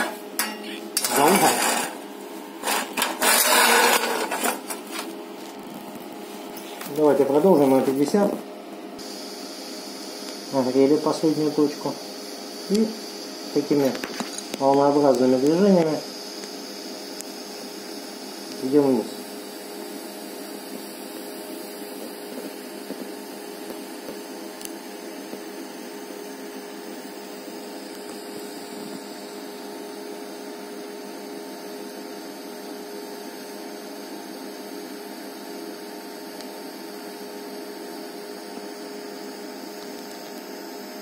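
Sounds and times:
welding arc hissing: 0.0s - 30.7s.

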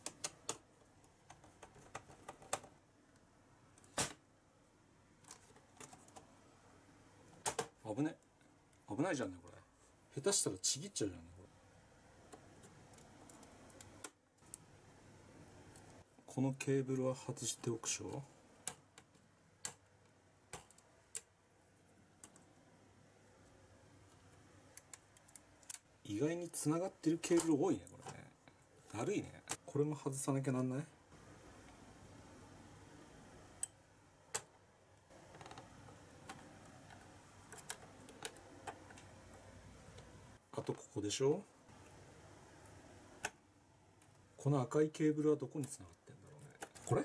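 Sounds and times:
plastic keyboard clicks and taps: 1.3s - 2.7s.

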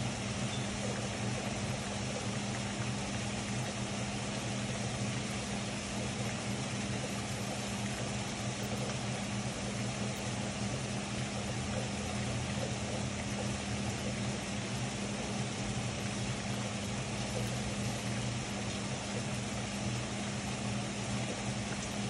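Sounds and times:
low mechanical hum: 0.0s - 22.0s.

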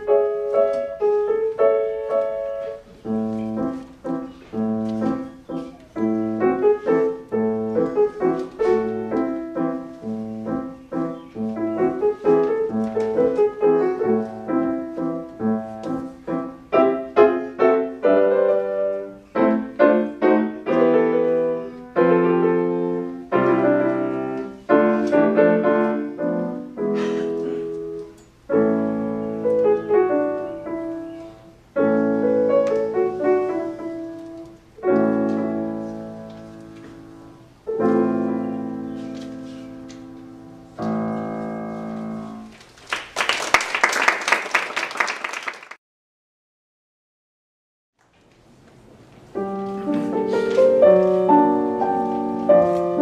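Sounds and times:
solo piano chords: 0.0s - 42.6s, 49.3s - 53.0s
applause: 42.6s - 45.8s.

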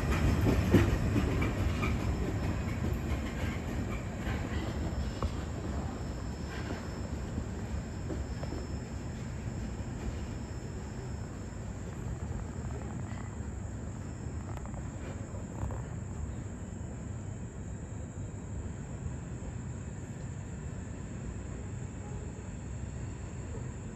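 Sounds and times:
train cars rumbling on track: 0.0s - 17.2s.

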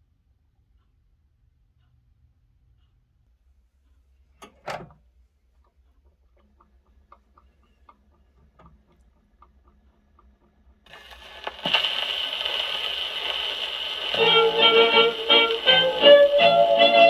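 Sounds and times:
gramophone needle ticks: 2.7s - 16.6s
record surface hiss: 3.2s - 17.0s
gramophone record music: 5.9s - 17.0s.

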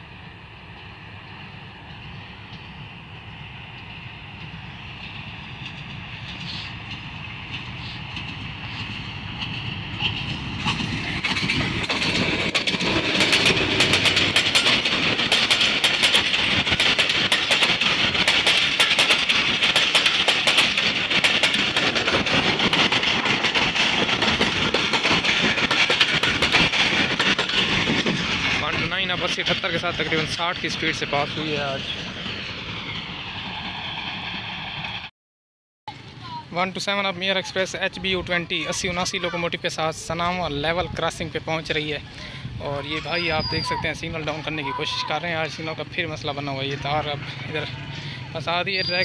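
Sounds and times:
train rumble: 0.0s - 35.1s, 35.9s - 49.0s
wheels clattering over rail joints: 3.7s - 34.3s, 42.9s - 49.0s.

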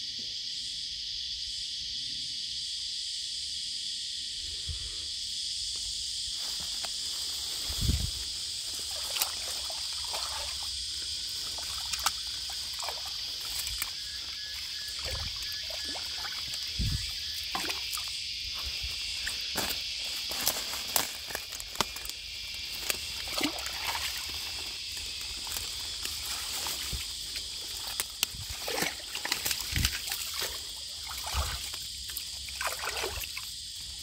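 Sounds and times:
high-pitched insect drone: 0.0s - 34.0s
trickling creek water: 6.5s - 34.0s
splashes and knocks in water: 8.7s - 10.7s, 11.4s - 13.9s, 14.9s - 18.1s, 22.7s - 24.6s, 27.8s - 33.5s.

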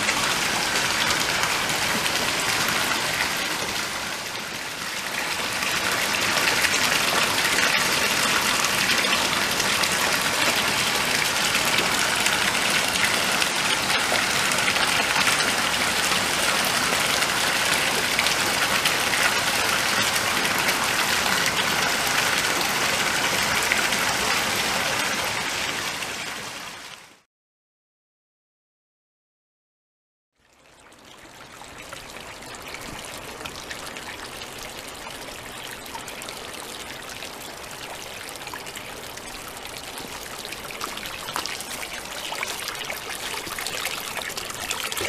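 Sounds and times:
water pouring into a bath: 5.0s - 24.8s, 36.7s - 45.0s.

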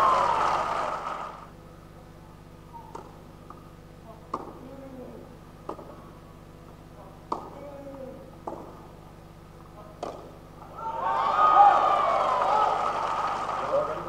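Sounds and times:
tennis ball knocks: 7.3s - 7.6s, 8.4s - 8.8s.

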